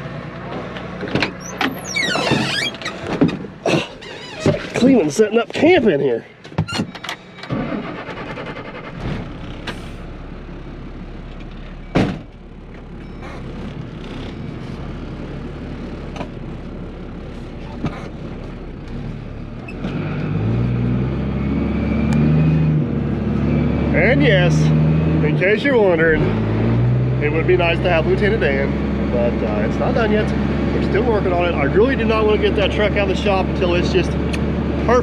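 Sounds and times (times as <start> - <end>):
diesel engine idling: 7.2 - 19.7, 22.8 - 35.0
engine revving up: 18.9 - 35.0.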